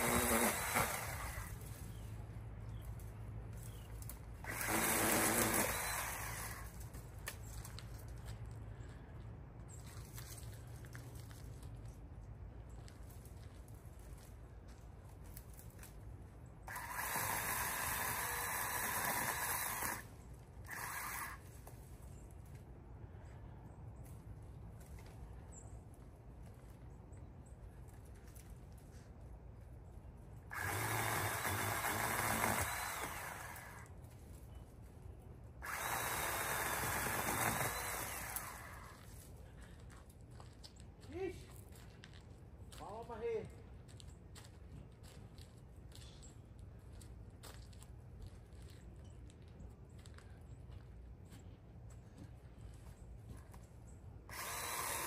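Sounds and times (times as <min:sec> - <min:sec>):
pole saw running: 0:00.0 - 0:01.6, 0:04.4 - 0:06.7, 0:16.7 - 0:21.5, 0:30.5 - 0:33.9, 0:35.6 - 0:39.0, 0:54.3 - 0:55.0.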